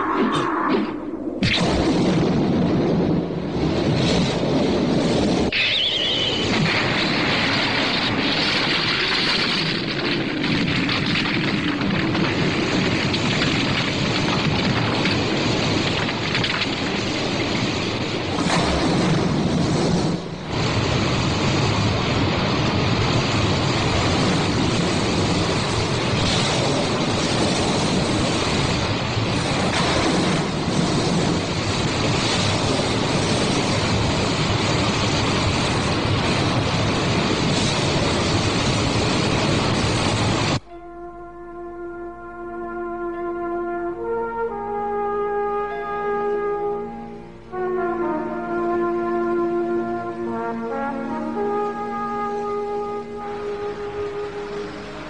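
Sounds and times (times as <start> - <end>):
water rushing: 48.2 - 55.0.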